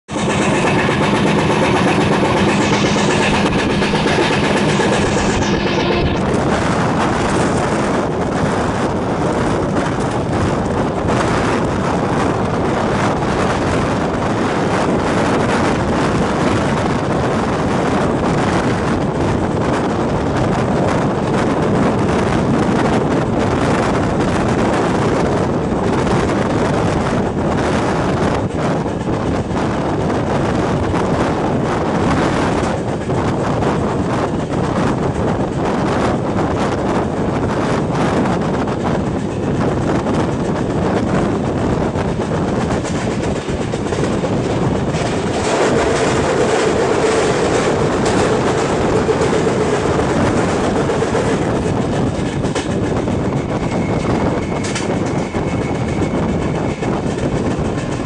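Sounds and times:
train wheels rumbling on rail: 0.0 - 58.0
steady whine: 0.1 - 10.2, 41.8 - 58.0
wind buffeting microphone: 0.1 - 58.0.

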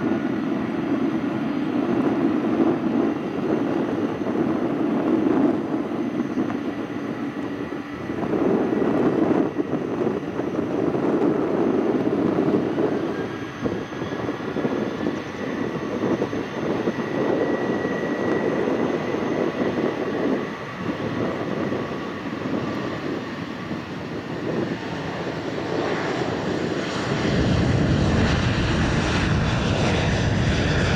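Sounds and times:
jet engines rumbling: 0.0 - 30.9.

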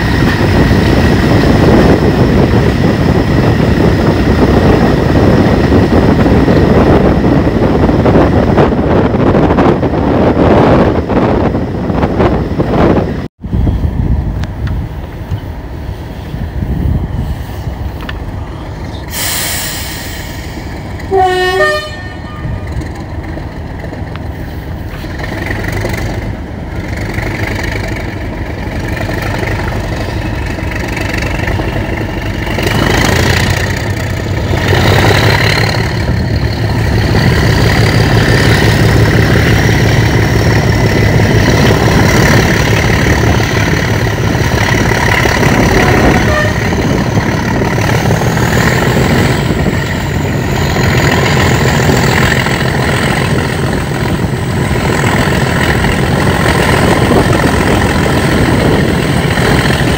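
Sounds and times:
diesel locomotive engine working hard: 0.0 - 59.9
locomotive horn toot: 21.1 - 22.8, 45.4 - 47.0.

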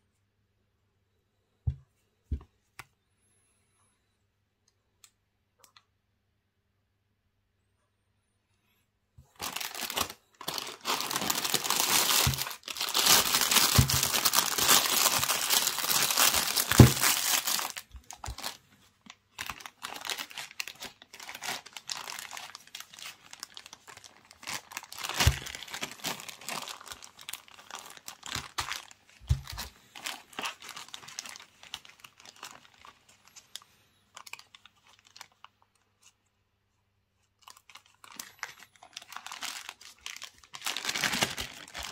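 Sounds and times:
plastic packaging crinkling: 9.2 - 36.2, 37.3 - 41.9.

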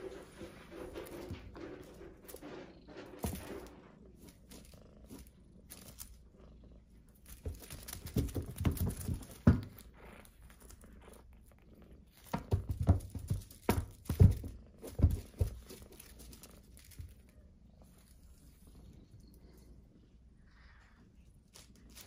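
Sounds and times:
kitten pouncing on a toy: 0.0 - 6.2, 7.2 - 10.8, 12.1 - 17.3.

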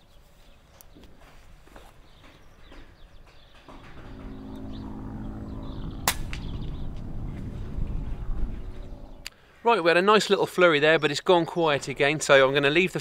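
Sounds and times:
engine hum: 2.7 - 9.3
air rifle shot: 6.0 - 6.5.

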